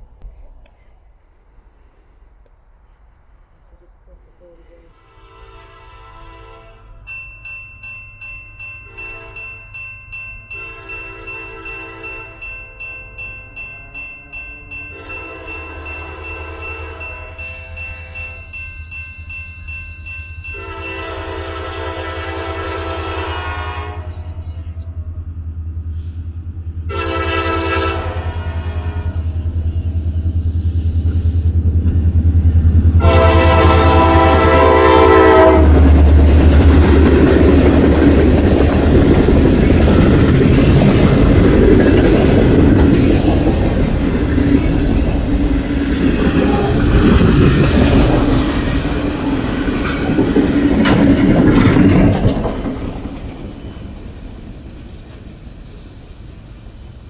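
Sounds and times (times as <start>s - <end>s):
train horn blasts: 5.0s - 7.1s, 8.9s - 9.6s, 10.5s - 12.5s, 14.9s - 18.4s, 20.5s - 24.8s, 26.9s - 29.5s, 33.0s - 36.0s
freight cars rumbling: 35.6s - 57.0s
wheels clattering over rail joints: 36.2s - 55.5s.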